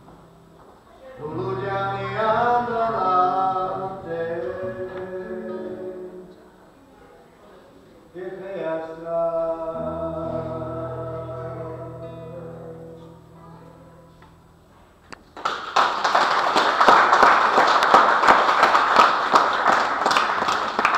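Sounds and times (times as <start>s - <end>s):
acoustic guitar chord ringing: 9.4s - 14.9s
audience applause: 15.4s - 20.9s.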